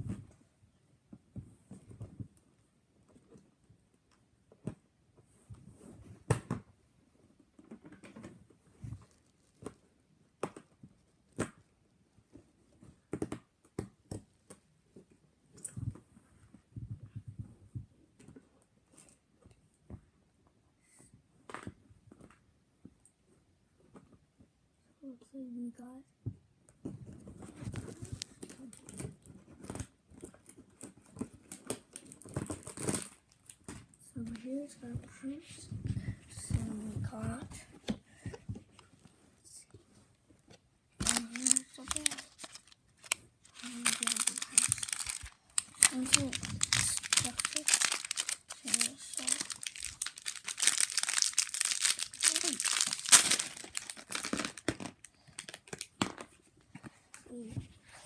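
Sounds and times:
soft rustling: 0:26.8 - 0:58.0
packaging rustling and clicking: 0:41.0 - 0:56.4.

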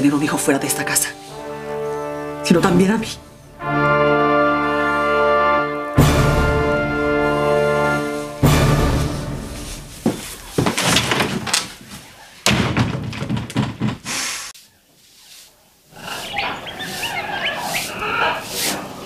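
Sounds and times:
birds chirping: 0:00.0 - 0:04.0, 0:11.6 - 0:12.5, 0:14.6 - 0:19.0
knocks and thuds: 0:10.0 - 0:14.2
door slamming: 0:12.4 - 0:14.1.

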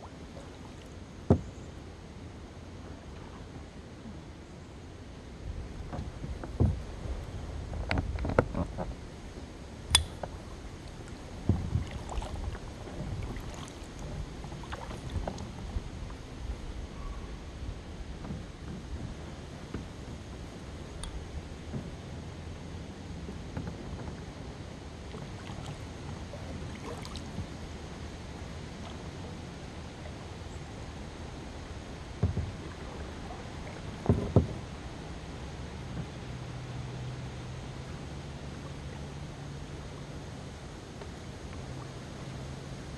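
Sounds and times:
paddle splashes and drips: 0:00.0 - 0:01.6, 0:05.5 - 0:22.1, 0:24.9 - 0:42.9
low rumble of water and wind: 0:00.0 - 0:42.9
dull knocks on boat: 0:01.3 - 0:01.6, 0:05.9 - 0:06.9, 0:11.4 - 0:12.2, 0:32.2 - 0:32.7, 0:34.0 - 0:34.7.

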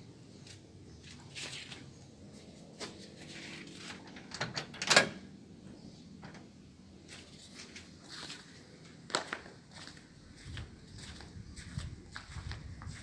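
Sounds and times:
footsteps on paving blocks: 0:09.1 - 0:13.0.

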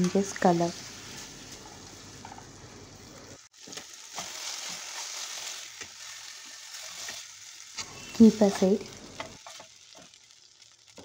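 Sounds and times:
chicken sizzling in oil: 0:00.0 - 0:11.0
spatula scraping and tapping pan: 0:07.8 - 0:10.2.

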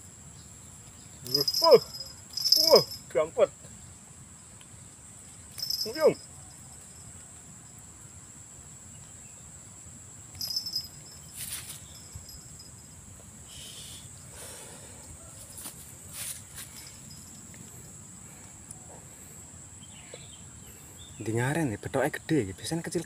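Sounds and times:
insects chirring: 0:00.0 - 0:23.0
rustles and knocks handling fish: 0:15.4 - 0:17.0.

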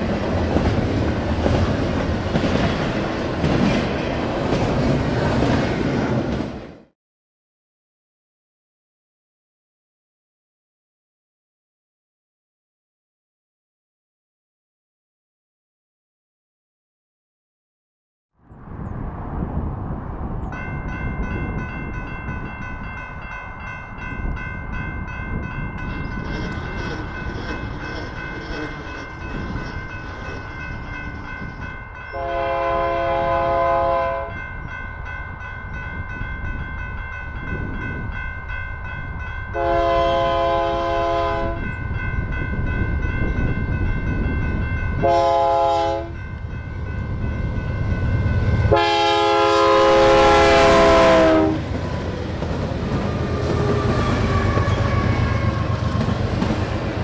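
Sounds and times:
train rumble: 0:00.0 - 0:06.9, 0:18.5 - 0:57.0
locomotive air horn: 0:32.1 - 0:34.4, 0:39.5 - 0:41.6, 0:45.0 - 0:46.2, 0:48.7 - 0:51.7, 0:53.2 - 0:55.8.

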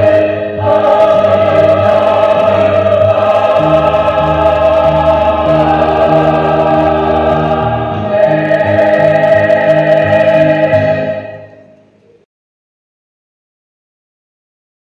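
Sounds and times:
choir singing a hymn: 0:00.0 - 0:11.8.

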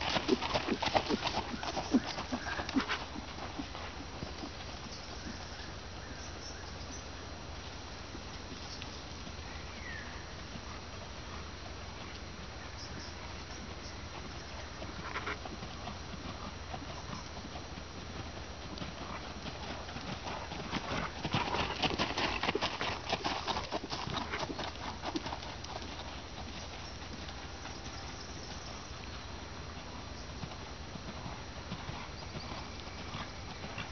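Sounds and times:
horse hooves trotting on gravel: 0:00.0 - 0:06.0, 0:07.6 - 0:33.9.

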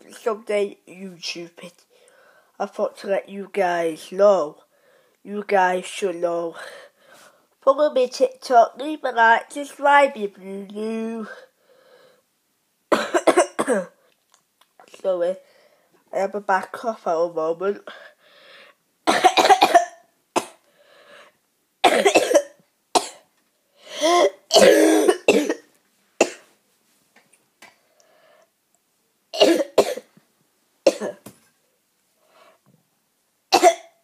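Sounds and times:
boy coughing: 0:12.9 - 0:14.0, 0:19.1 - 0:20.6, 0:21.8 - 0:23.2, 0:23.9 - 0:26.4, 0:29.4 - 0:30.1, 0:30.9 - 0:31.2, 0:33.5 - 0:34.0.

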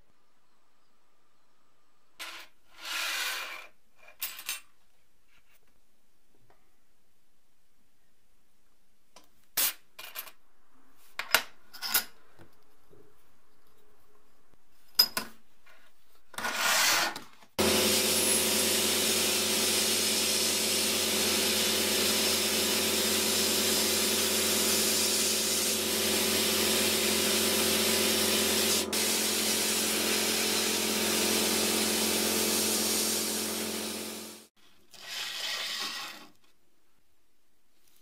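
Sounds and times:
sandblaster hissing: 0:17.6 - 0:34.5.

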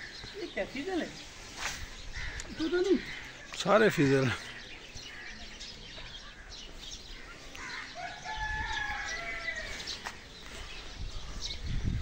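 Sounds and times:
small birds chirping: 0:00.0 - 0:12.0
rooster crowing: 0:08.0 - 0:09.8.

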